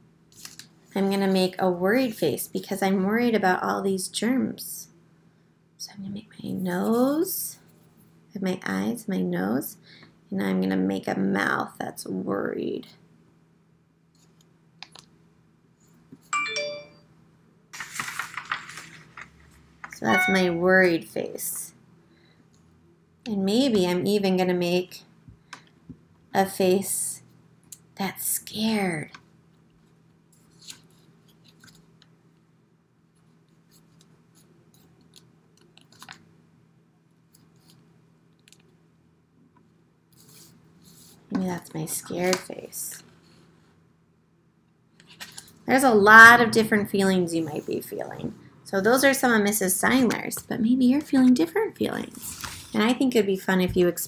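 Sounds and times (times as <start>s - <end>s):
low steady hum: 0.0s - 54.0s
bright chime ding: 16.4s - 17.0s, 20.1s - 20.6s.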